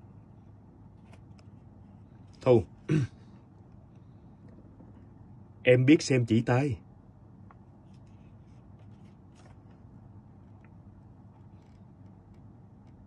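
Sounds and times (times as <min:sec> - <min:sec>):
low steady hum: 0:00.0 - 0:13.0
faint rustles: 0:07.8 - 0:13.0.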